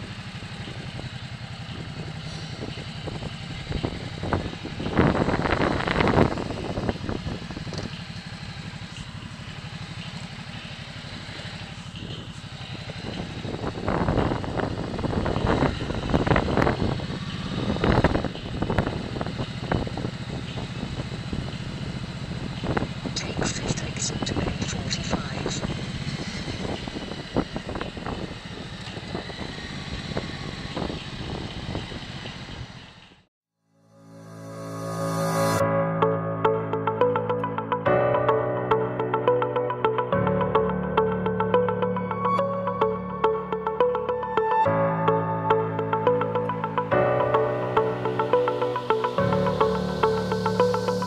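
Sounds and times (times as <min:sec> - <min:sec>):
motorcycle engine low throb: 0:00.0 - 0:33.1, 0:35.0 - 0:51.0
wind rush over microphone: 0:02.5 - 0:07.9, 0:13.0 - 0:21.0, 0:22.7 - 0:32.6.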